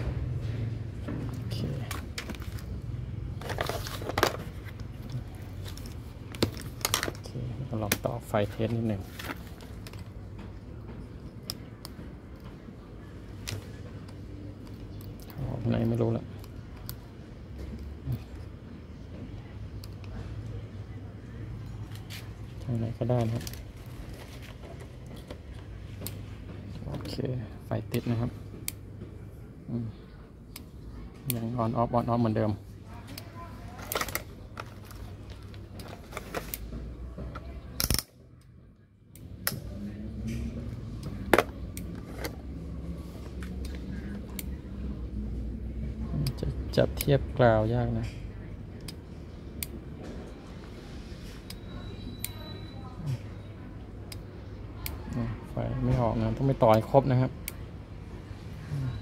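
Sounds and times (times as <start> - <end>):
light clicks and handling noises: 0.4 - 44.6.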